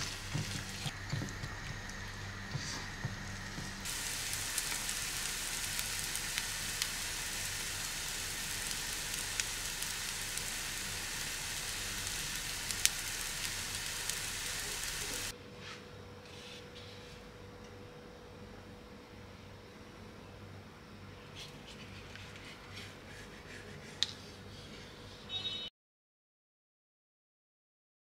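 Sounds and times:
food sizzling in a frying pan: 0.0s - 1.0s, 3.8s - 15.3s
faint steady hum: 0.0s - 15.3s.

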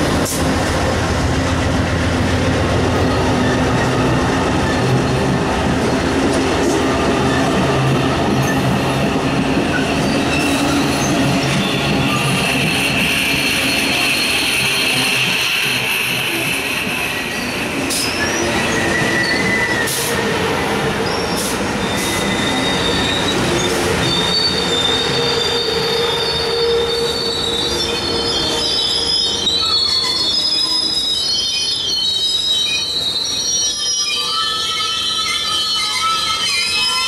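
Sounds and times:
train wheels rumbling on rail: 0.0s - 37.0s
wheels and brakes squealing: 9.7s - 20.2s, 21.0s - 37.0s.

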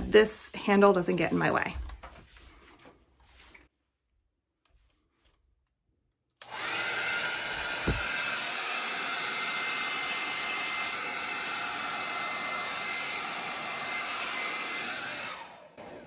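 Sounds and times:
hair dryer running: 6.4s - 16.0s
low thump: 7.8s - 8.1s.

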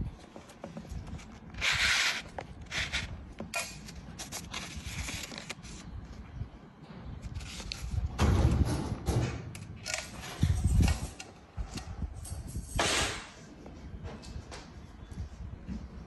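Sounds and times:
card and paper rustling: 0.1s - 6.2s, 7.2s - 8.0s.

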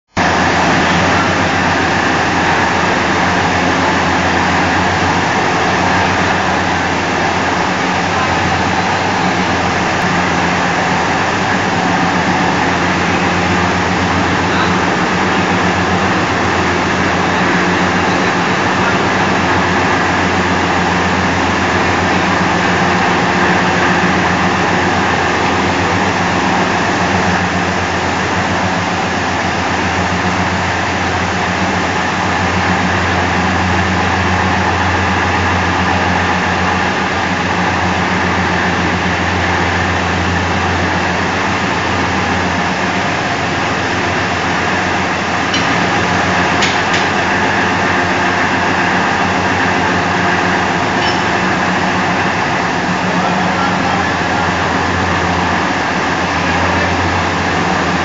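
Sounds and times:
flour mill machine hum: 0.1s - 58.0s.

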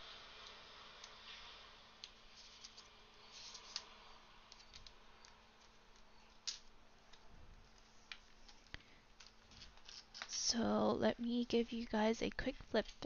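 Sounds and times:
paper rustling: 2.3s - 3.9s.

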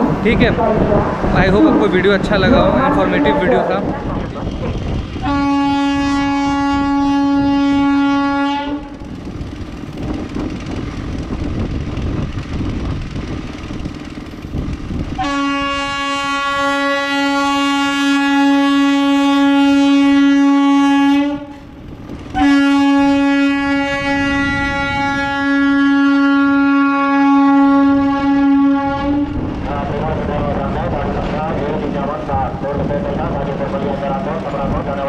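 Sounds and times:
train rumbling on track: 0.0s - 35.0s
train horn blasts: 5.2s - 9.0s, 15.2s - 21.7s, 22.3s - 29.4s.

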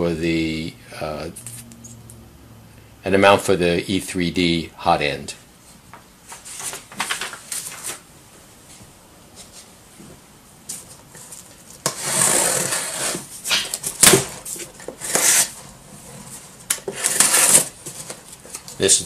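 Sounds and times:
cardboard boxes scraping: 11.3s - 18.6s.

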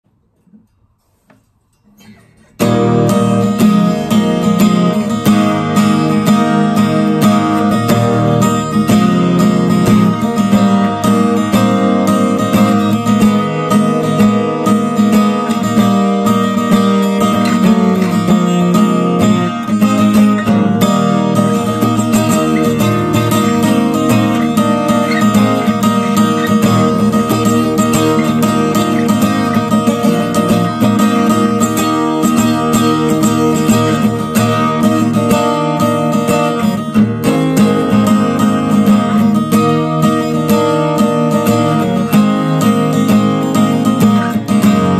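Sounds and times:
acoustic guitar strumming chords: 0.1s - 44.9s.

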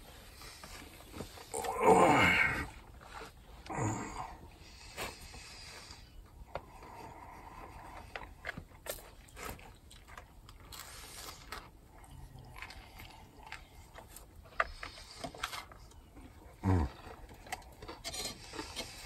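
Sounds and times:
person biting and chewing: 8.8s - 15.7s.

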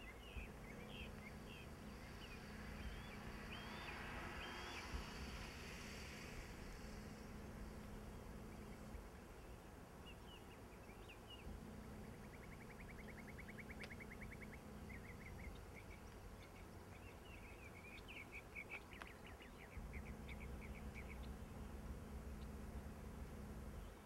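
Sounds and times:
bird trilling and chirping: 0.0s - 5.3s, 10.1s - 24.0s
low steady rumble: 0.0s - 24.0s.

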